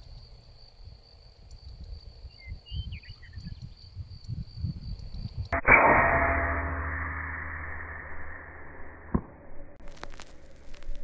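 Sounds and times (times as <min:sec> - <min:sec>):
wind rumble on microphone: 0:00.2 - 0:05.6.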